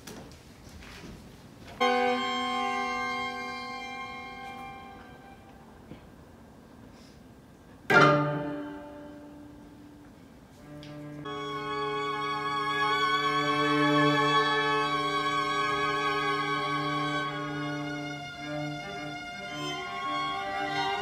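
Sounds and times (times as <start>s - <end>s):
string quartet loud chord: 1.8s - 5.8s, 7.9s - 9.8s, 10.8s - 21.0s.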